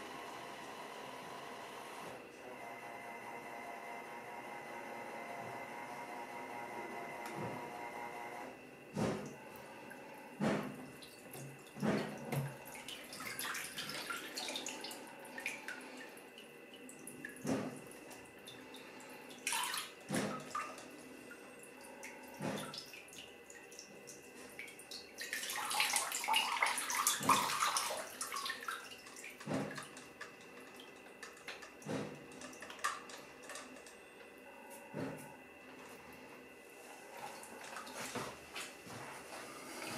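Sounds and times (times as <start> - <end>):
water sloshing and splashing: 9.0 - 39.9.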